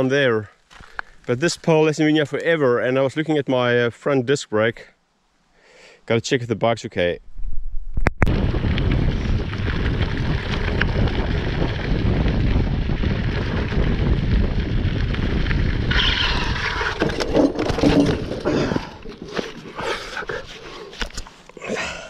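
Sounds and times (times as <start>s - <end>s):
wind buffeting microphone: 7.4s - 20.5s
tyres rumbling over gravel: 8.3s - 21.1s
bike clattering: 14.9s - 20.1s.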